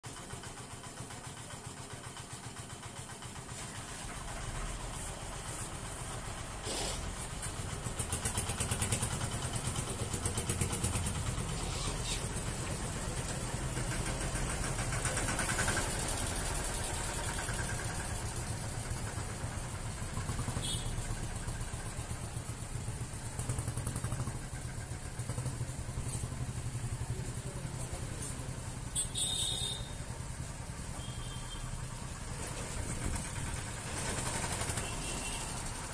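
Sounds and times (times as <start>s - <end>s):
tractor engine passing: 3.2s - 28.6s, 31.6s - 35.9s
motorcycle engine passing: 3.5s - 29.4s, 30.3s - 35.9s.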